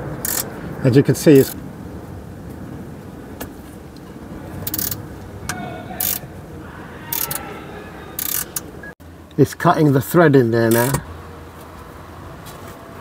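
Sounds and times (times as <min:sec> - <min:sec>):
steady low rumble: 0:00.0 - 0:07.0
ratchet clicking: 0:00.2 - 0:00.5, 0:01.4 - 0:01.6, 0:04.6 - 0:05.0, 0:06.0 - 0:06.2, 0:07.1 - 0:07.4, 0:08.2 - 0:08.7, 0:10.7 - 0:11.0.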